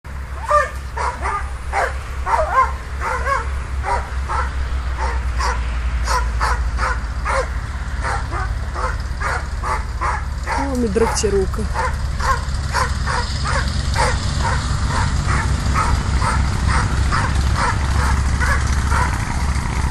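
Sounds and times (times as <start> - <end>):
steady low rumble: 0.1 - 19.9
dog barking high-pitched: 0.4 - 19.2.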